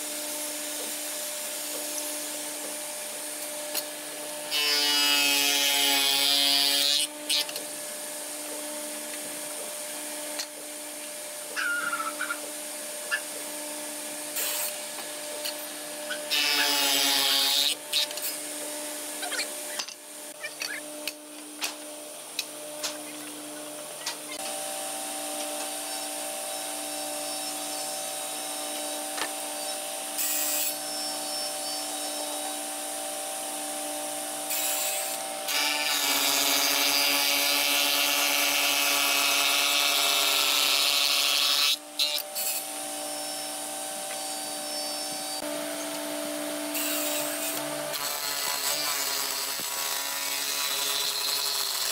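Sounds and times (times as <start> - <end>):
woodworking machine humming: 5.8 - 51.9
machine cutting into wood: 46.7 - 51.9.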